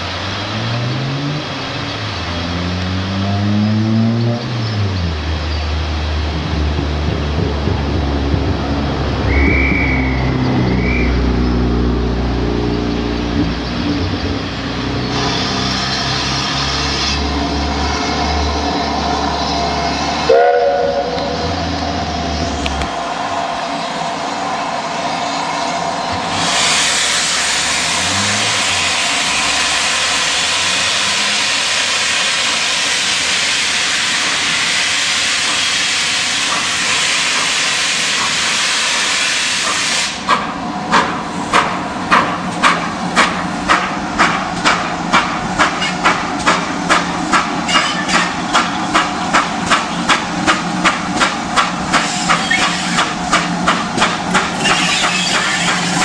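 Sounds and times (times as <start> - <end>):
steam locomotive chuffing: 4.6 - 56.0
steam hissing: 14.4 - 56.0.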